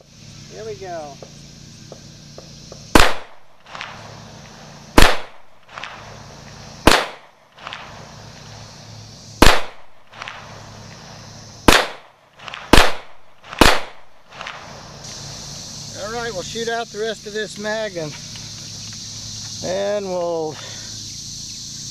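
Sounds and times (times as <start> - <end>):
pistol shots: 2.9 - 4.0, 4.9 - 6.0, 6.8 - 8.0, 9.4 - 10.5, 11.6 - 14.7.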